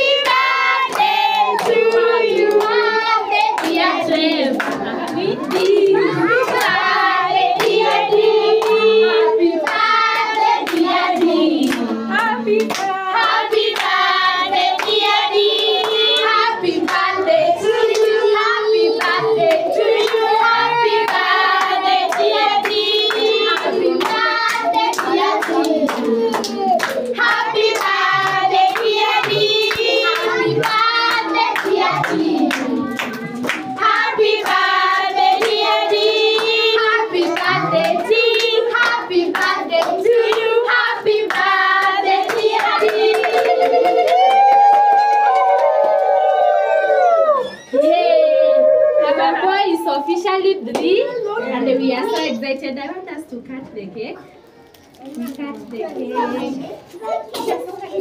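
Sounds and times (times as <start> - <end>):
group of people singing: 0.0 - 44.2
hand-clapping: 0.1 - 2.8, 3.6 - 3.9, 4.5 - 6.8, 9.6 - 14.0, 21.0 - 46.5.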